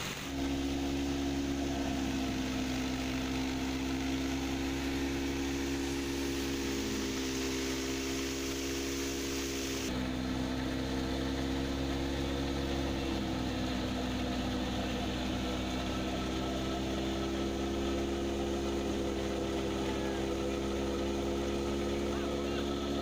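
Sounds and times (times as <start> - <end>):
thresher machine droning: 0.0 - 23.0.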